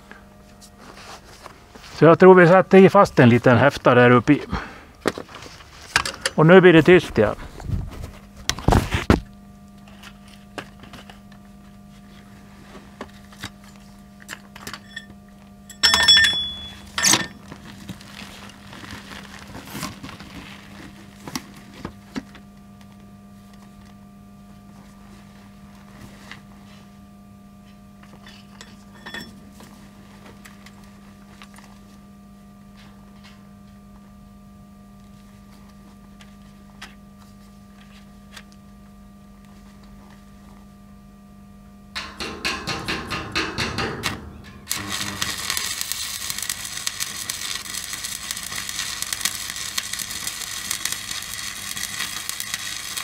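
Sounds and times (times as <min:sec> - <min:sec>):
steady low hum: 0:00.0 - 0:53.0
light metal clinks: 0:15.7 - 0:17.3
ringing metal clanks: 0:15.7 - 0:17.4, 0:28.6 - 0:29.3, 0:42.0 - 0:44.7.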